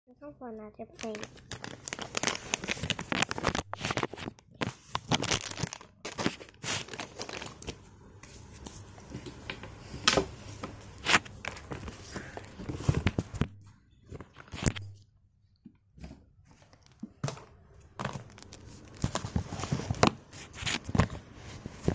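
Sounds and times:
crackles: 0:00.9 - 0:07.8.

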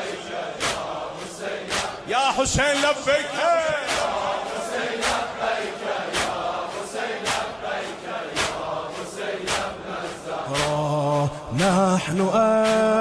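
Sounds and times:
crowd of men chanting: 0:00.0 - 0:13.0
loud sharp beat: 0:00.0 - 0:13.0.

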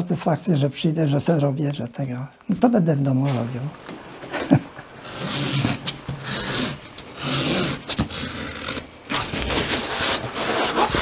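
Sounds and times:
leather bag rubbing and scraping: 0:05.0 - 0:11.0.

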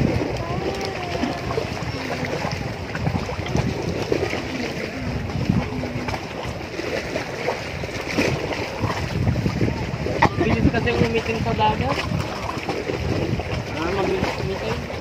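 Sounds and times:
faint voices: 0:00.0 - 0:07.0
sea water lapping on rocky shore: 0:00.0 - 0:15.0
wind on microphone: 0:00.0 - 0:15.0.

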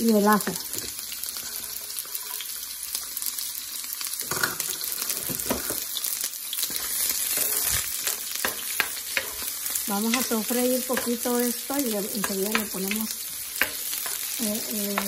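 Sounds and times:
onion and garlic sizzling in oil: 0:00.0 - 0:15.0
scrapes and taps in pan: 0:06.7 - 0:09.5, 0:13.6 - 0:15.0.

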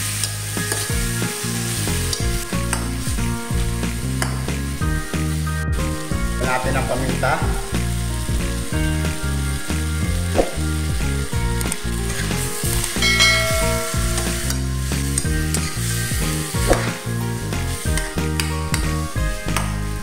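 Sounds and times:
food sizzling in a wok: 0:00.0 - 0:20.0
utensil knocking on pan: 0:13.0 - 0:15.4.

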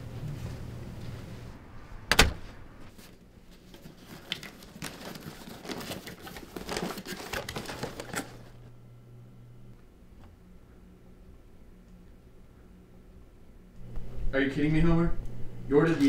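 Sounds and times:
front door banging shut: 0:02.1 - 0:02.6
package rustling and crinkling: 0:02.9 - 0:08.7.

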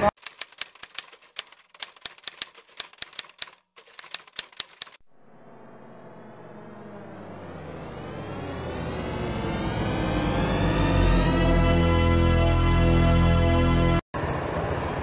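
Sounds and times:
typewriter keystroke clicks: 0:00.1 - 0:05.0
low drone: 0:05.0 - 0:14.5.

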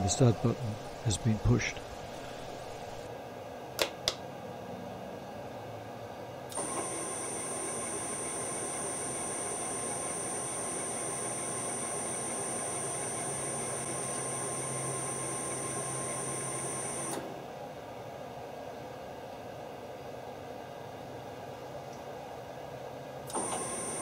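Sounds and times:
steady hum: 0:00.0 - 0:03.2
lathe motor with high whine: 0:06.5 - 0:17.4, 0:23.3 - 0:24.0.

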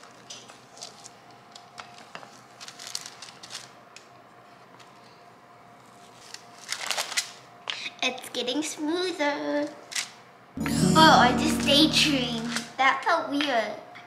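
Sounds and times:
parchment paper crinkling: 0:00.0 - 0:03.8, 0:05.8 - 0:07.4.

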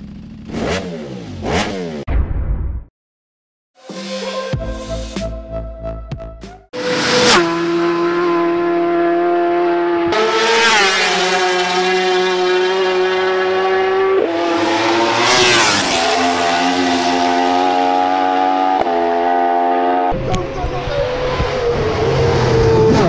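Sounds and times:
racing motorbikes passing: 0:06.8 - 0:23.0.

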